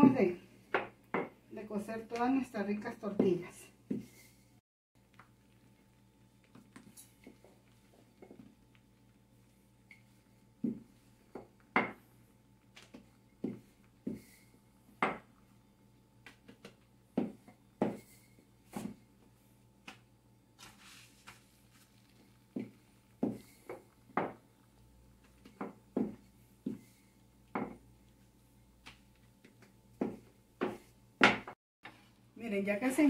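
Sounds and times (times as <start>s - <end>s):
rolling pin knocking on countertop: 11.4s - 12.0s, 15.0s - 15.3s, 16.5s - 18.0s, 24.1s - 24.4s, 27.5s - 27.8s, 30.0s - 31.6s.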